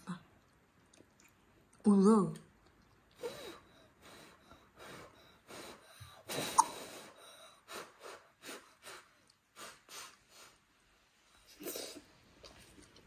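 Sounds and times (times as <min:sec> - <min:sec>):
child blowing puffs of breath: 0:03.2 - 0:10.7.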